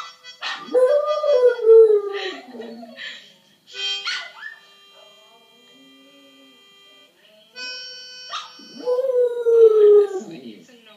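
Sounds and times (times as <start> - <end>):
harmonica music: 0.0 - 10.7
dog howling: 0.6 - 3.0, 8.7 - 10.4.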